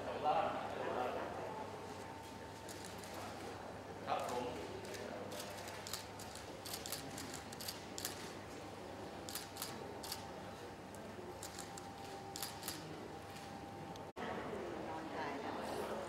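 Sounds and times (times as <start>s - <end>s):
faint room hum: 0.0s - 16.0s
camera shutters clicking: 12.4s - 12.8s.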